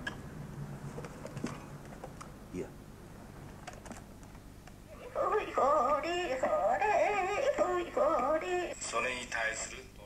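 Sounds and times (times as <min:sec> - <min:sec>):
recorded sing-song voice: 0:04.9 - 0:09.7.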